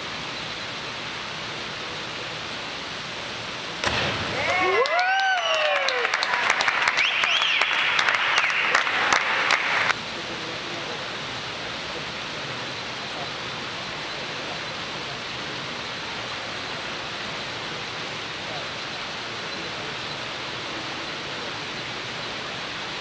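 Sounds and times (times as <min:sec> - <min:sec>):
steady hiss: 0:00.0 - 0:23.0
crowd clapping and cheering: 0:04.3 - 0:10.0.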